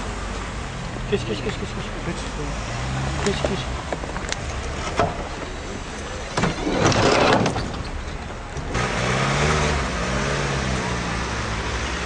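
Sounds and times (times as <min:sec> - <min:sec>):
vehicle engine humming: 0:00.0 - 0:06.7.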